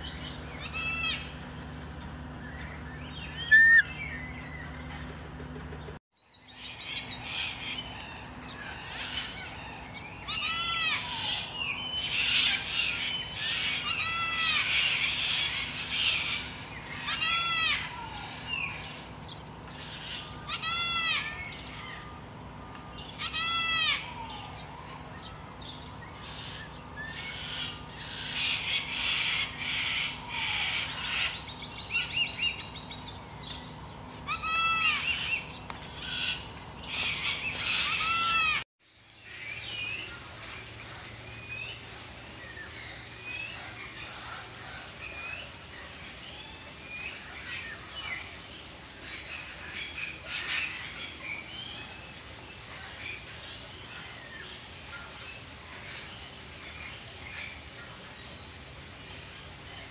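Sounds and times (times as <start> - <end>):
bird giving arched call: 0.0 - 5.2, 6.8 - 19.1, 19.8 - 22.2, 23.0 - 38.6
birds chirping: 0.0 - 38.6
high insect drone: 0.0 - 59.9.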